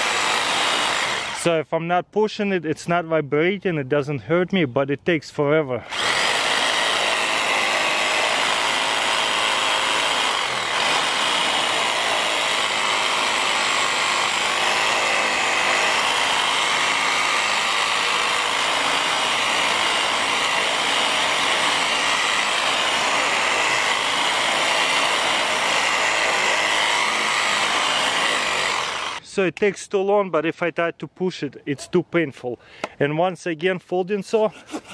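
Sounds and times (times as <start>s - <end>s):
reciprocating saw cutting branch: 0.0s - 1.4s, 5.8s - 29.2s.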